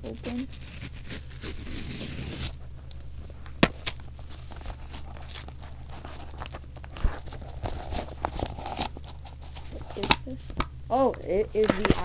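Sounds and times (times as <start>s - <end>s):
cardboard tearing and rustling: 0.0s - 2.7s, 3.4s - 10.3s.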